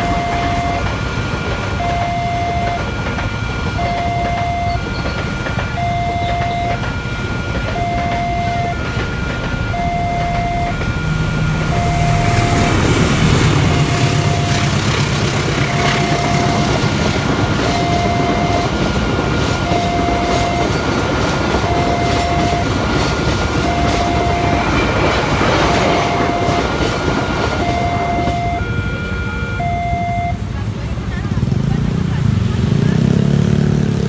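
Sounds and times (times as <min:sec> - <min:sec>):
train wheels clattering over rails: 0:00.0 - 0:28.5
two-tone crossing warning alarm: 0:00.0 - 0:30.8.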